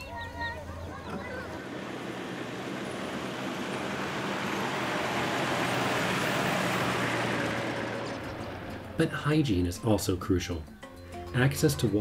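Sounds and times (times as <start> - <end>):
vehicle driving past: 1.0 - 9.4.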